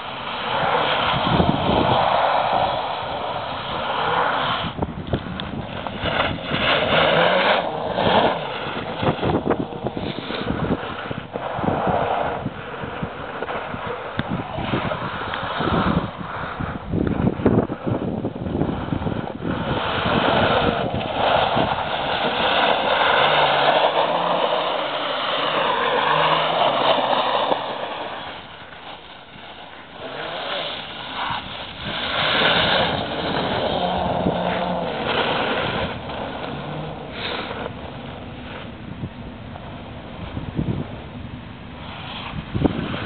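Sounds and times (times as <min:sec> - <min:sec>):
tyres spraying gravel: 0:00.0 - 0:43.0
quad bike engine revving: 0:19.0 - 0:28.0, 0:30.0 - 0:38.0.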